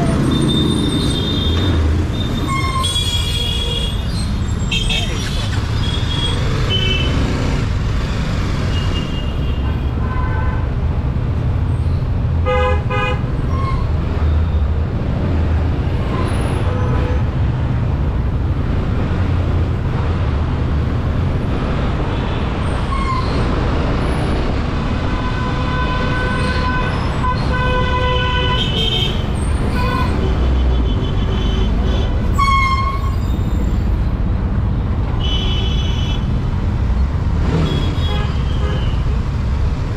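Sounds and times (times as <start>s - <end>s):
vehicle horns honking: 12.4s - 13.8s, 25.0s - 33.2s, 37.4s - 39.1s.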